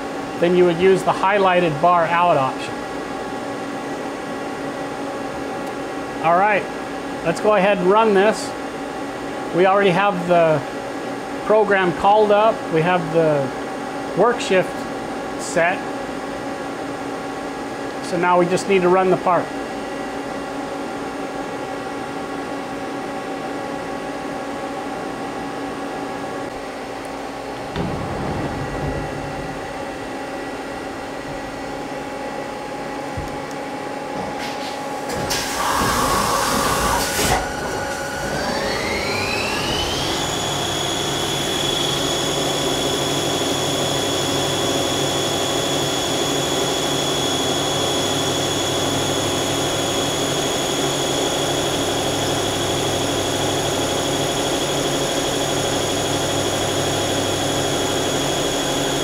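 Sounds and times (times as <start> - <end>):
lathe machine hum: 25.3 - 59.0
spindle whine rising in pitch: 26.4 - 34.0, 36.5 - 59.0
loud rushing burst: 27.7 - 31.2
coolant running: 35.1 - 59.0.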